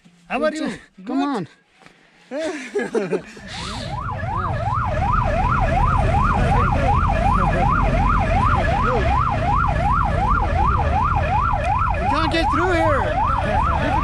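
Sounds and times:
traffic engine rumble: 3.3s - 14.0s
ambulance siren wailing: 3.4s - 14.0s.

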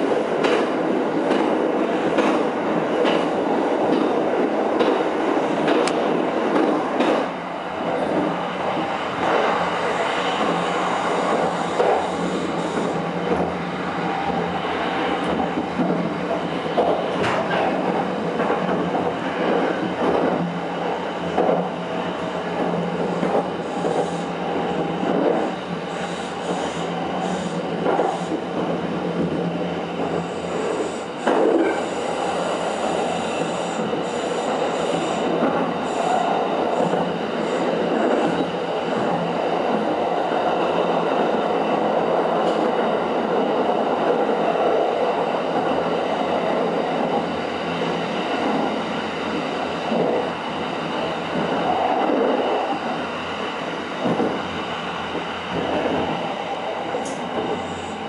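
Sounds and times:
train wheels rumbling on rail: 0.0s - 58.0s
track knocks: 54.0s - 54.4s.

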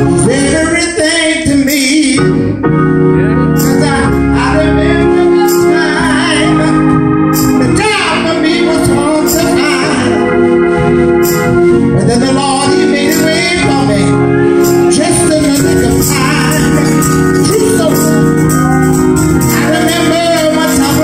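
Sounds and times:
electronic organ chords: 0.0s - 21.0s.

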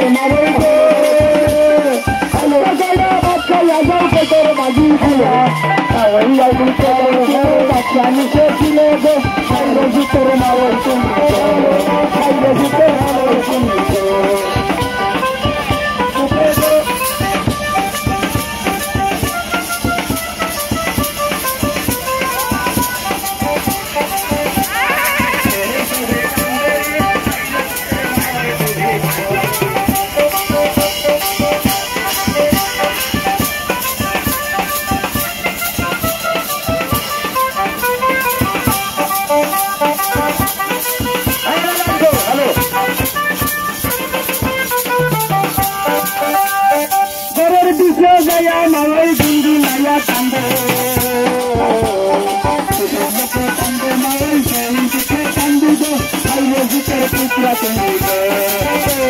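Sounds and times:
drums: 0.0s - 59.0s
fast rattling percussion: 0.0s - 59.0s
folk dance music: 0.0s - 59.0s.

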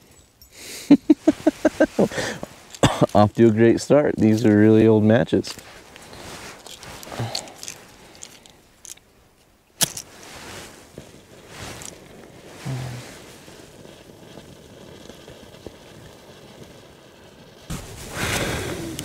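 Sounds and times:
rustling and handling: 0.0s - 14.0s
match struck flaring with hiss: 0.7s - 8.9s, 9.8s - 19.0s.

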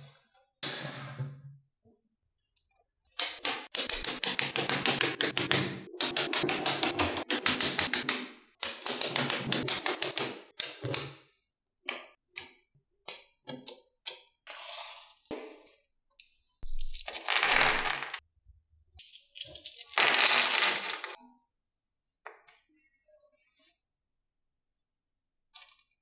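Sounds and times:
magnetic balls clicking together: 3.2s - 11.0s.

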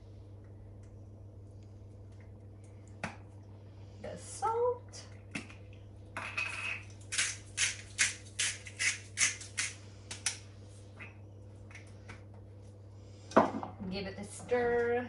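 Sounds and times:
pepper mill grinding: 6.5s - 10.3s.

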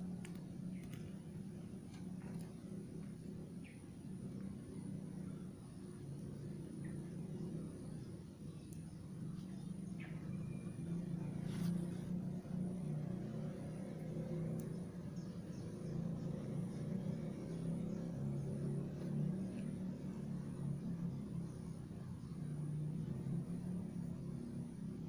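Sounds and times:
faint clicks: 0.1s - 4.5s, 8.6s - 10.2s.

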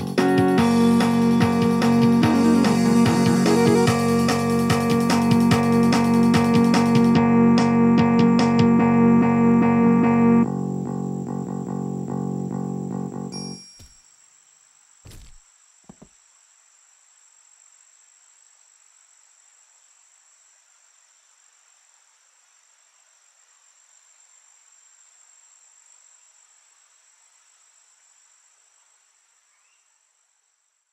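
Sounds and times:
crickets chirring: 10.4s - 30.9s
body thumps on ground: 13.8s - 14.0s, 15.0s - 16.1s.

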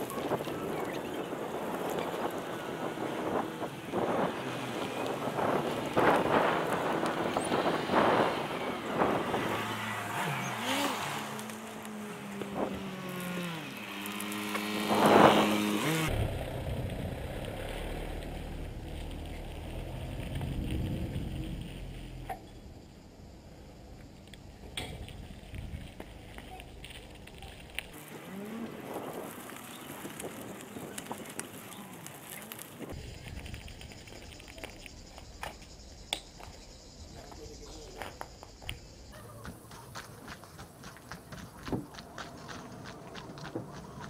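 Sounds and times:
wind on microphone: 0.0s - 10.8s, 14.8s - 17.5s
vehicle jolting over rough ground: 0.0s - 22.7s, 24.9s - 35.8s
vehicle engine: 0.0s - 44.0s.

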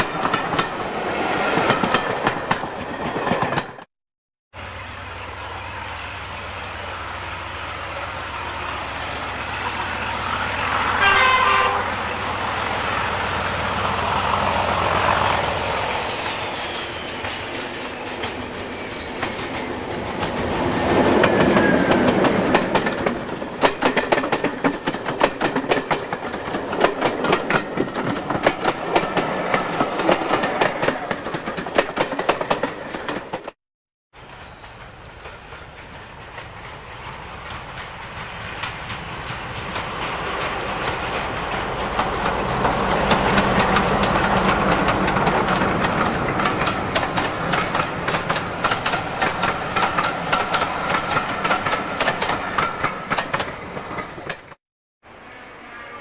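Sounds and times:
wheels clacking over rail joints: 0.0s - 3.9s, 14.0s - 33.6s, 34.2s - 54.6s
diesel locomotive engine: 4.5s - 33.6s, 34.2s - 55.9s
locomotive horn blast: 10.8s - 12.3s, 55.1s - 56.0s.

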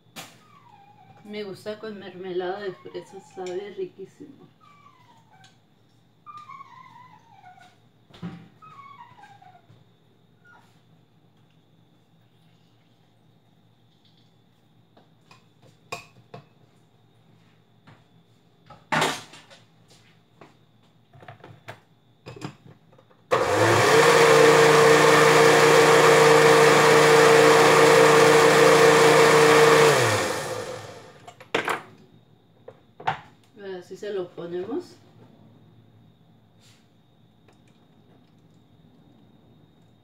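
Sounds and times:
blender motor whining: 23.3s - 31.3s.

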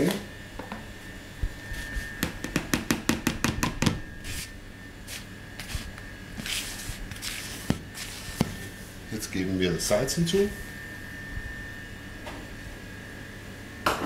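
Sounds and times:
hand stirring through flour: 4.2s - 10.8s.

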